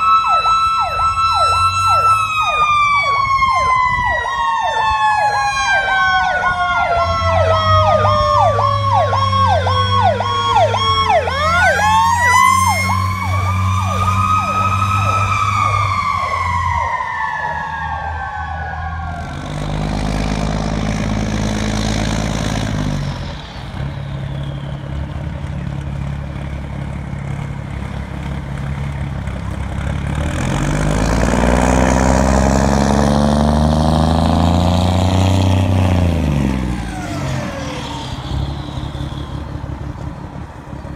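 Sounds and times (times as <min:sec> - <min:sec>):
siren yelp: 0:00.0 - 0:19.6, 0:36.6 - 0:39.7
siren wail: 0:00.0 - 0:21.4, 0:31.0 - 0:40.0
fire engine motor running: 0:00.0 - 0:35.0.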